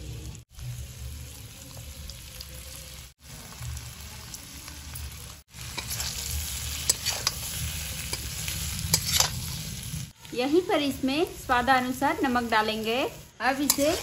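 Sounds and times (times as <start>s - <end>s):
potatoes sizzling in oil: 0.0s - 14.0s
metal spatula scraping pan: 5.6s - 9.8s, 13.5s - 14.0s.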